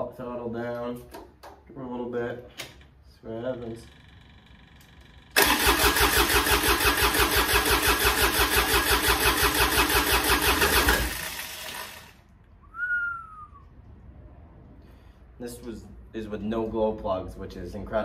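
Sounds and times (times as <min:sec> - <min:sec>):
starter motor cranking: 0:04.0 - 0:12.2
short falling whistle: 0:12.6 - 0:13.8.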